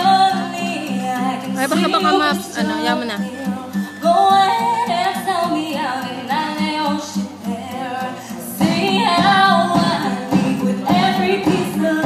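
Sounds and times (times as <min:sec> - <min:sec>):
girl singing into microphone: 0:00.0 - 0:12.0
backing music: 0:01.5 - 0:03.4.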